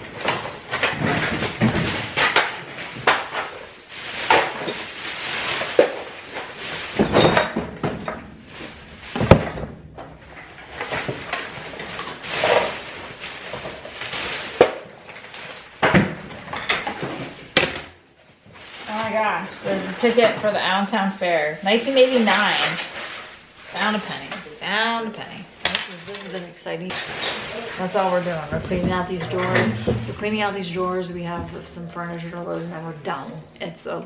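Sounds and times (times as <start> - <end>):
objects knocking in wooden drawers: 0.0 - 3.6, 6.9 - 12.9, 15.7 - 18.0, 28.3 - 31.8
plastic bag rustling: 0.0 - 34.0.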